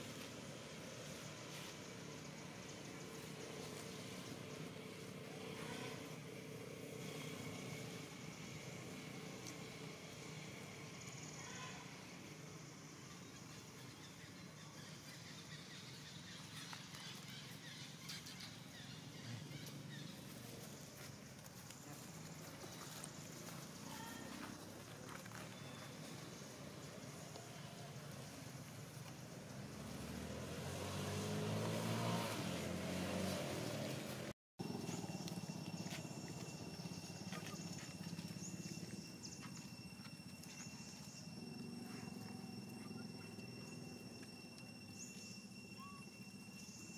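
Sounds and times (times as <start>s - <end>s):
engine passing: 0.0s - 11.1s, 26.0s - 46.9s
faint high chirps: 34.6s - 46.9s
thin high steady tones: 36.0s - 46.9s.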